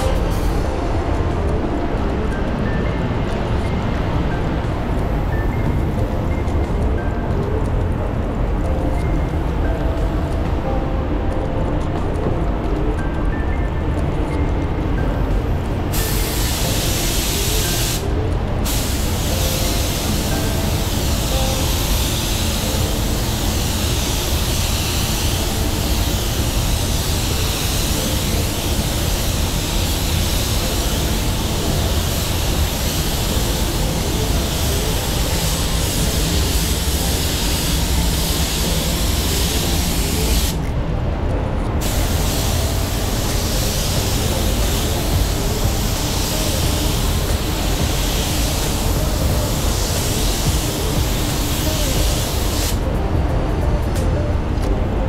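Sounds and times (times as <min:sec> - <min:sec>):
paint spray gun hissing: 0:15.9 - 0:40.6, 0:41.8 - 0:52.8.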